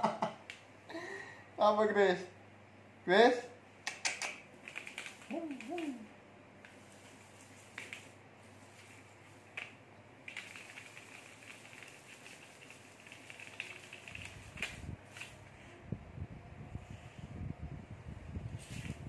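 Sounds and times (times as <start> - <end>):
plastic toy scratching on tiles: 4.6 - 6.0, 6.7 - 15.4.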